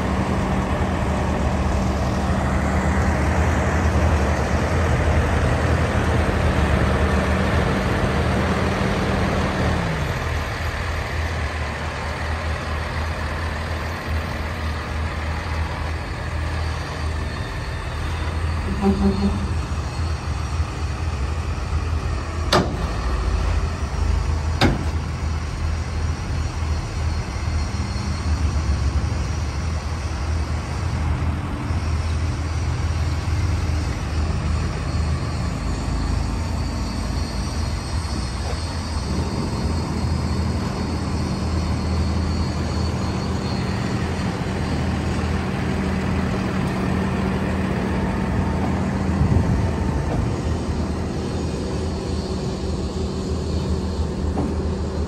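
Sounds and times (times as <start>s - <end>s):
diesel truck engine idling: 0.0s - 55.0s.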